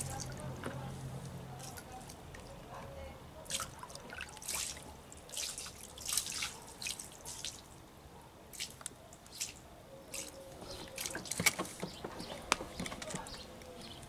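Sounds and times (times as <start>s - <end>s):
small splashes and drips: 0.0s - 2.6s, 3.4s - 7.9s, 8.5s - 12.5s
water sloshing in a tub: 3.4s - 7.8s, 8.5s - 13.4s.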